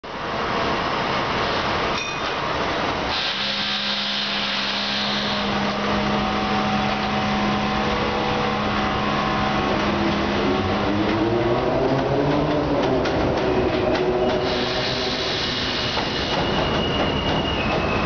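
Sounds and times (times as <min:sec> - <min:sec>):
train wheels rumbling on rail: 0:00.1 - 0:18.0
train motor whine: 0:03.1 - 0:11.2.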